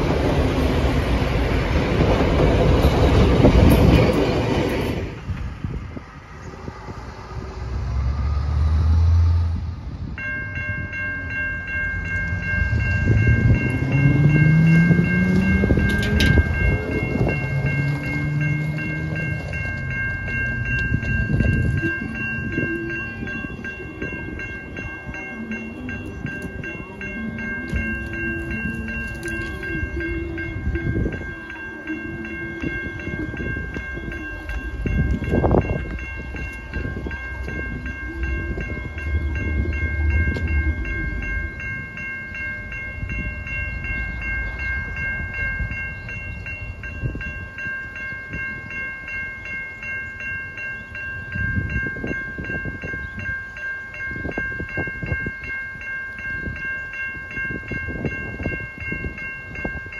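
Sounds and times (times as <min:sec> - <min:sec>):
level crossing bell ringing: 0:10.2 - 0:59.9.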